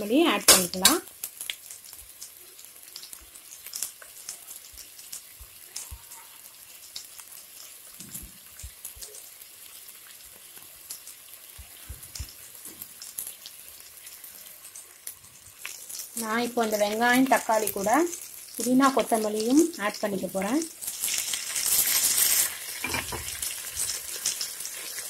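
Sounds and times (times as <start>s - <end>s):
crackles and pops: 0.0s - 25.0s
onions sizzling in oil: 0.0s - 25.0s.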